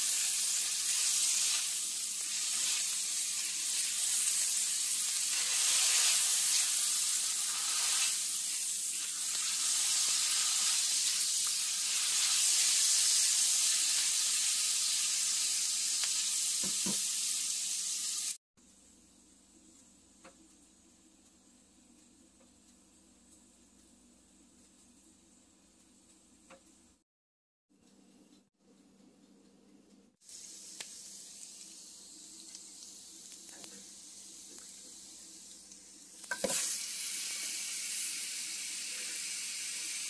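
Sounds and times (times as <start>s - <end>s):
spatula stirring in skillet: 0.0s - 14.2s, 32.5s - 37.4s
garlic sizzling in hot oil: 0.0s - 18.4s, 30.2s - 40.0s.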